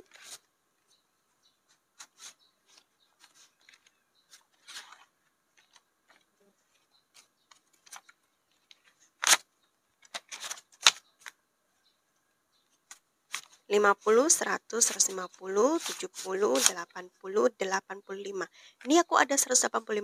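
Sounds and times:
paper banknotes rustling: 0.0 - 0.5, 1.7 - 11.4, 12.7 - 16.9
banknotes crinkling: 0.0 - 1.0, 1.6 - 11.5, 12.7 - 17.0.

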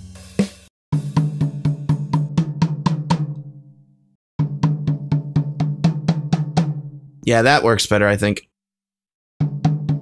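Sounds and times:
drum kit hits: 0.0 - 3.4, 9.4 - 10.0.

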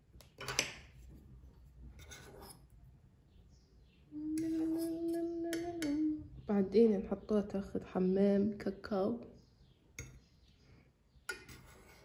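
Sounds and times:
fork scraping a saucepan: 1.9 - 2.7, 4.4 - 5.6, 11.3 - 12.0.

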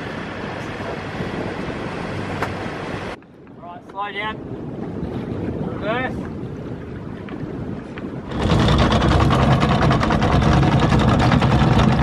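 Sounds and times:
water noise: 0.0 - 3.5, 4.1 - 12.0
wind: 0.0 - 12.0
boat motor running loudly: 8.3 - 12.0.

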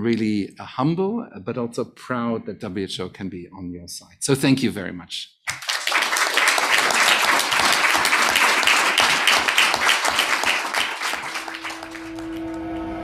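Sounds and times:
audience applause: 5.5 - 13.0
held musical tone: 11.2 - 13.0.

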